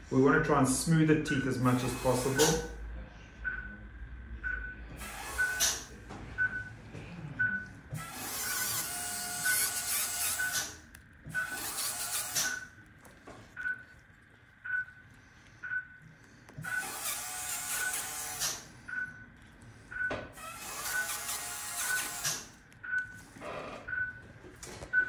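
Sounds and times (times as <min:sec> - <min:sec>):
dental polisher whirring: 0:01.6 - 0:02.7, 0:05.0 - 0:06.0, 0:07.6 - 0:24.2.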